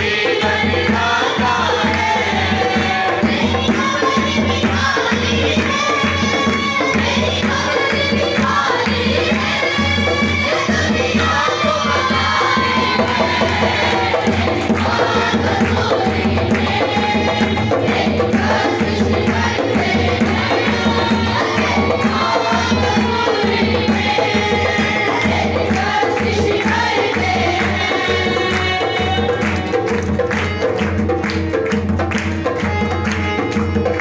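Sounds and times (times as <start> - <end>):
woman and singers singing worship song: 0.0 - 29.8
hand percussion beat: 0.0 - 34.0
harmonium: 13.2 - 34.0.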